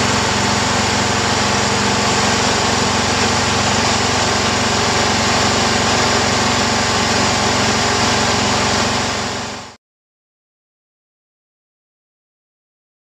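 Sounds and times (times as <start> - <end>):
blade pushing snow: 0.0 - 9.8
garden tractor engine running: 0.0 - 9.8.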